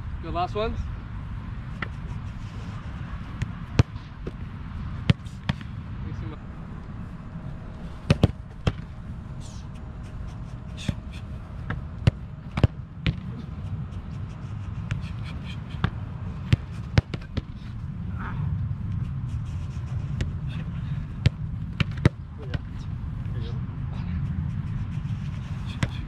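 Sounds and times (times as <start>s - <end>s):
low rumble: 2.4s - 14.0s
footballs thudding: 3.3s - 5.8s, 8.0s - 9.0s, 10.8s - 13.3s, 15.8s - 17.6s, 21.1s - 22.8s.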